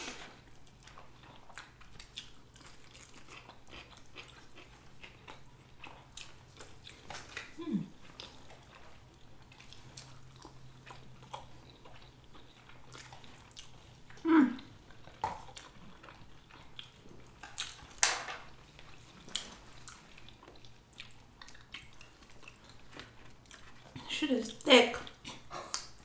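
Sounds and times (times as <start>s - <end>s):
mouth chewing food: 0.0s - 26.0s
person humming: 7.6s - 7.9s, 14.2s - 14.6s.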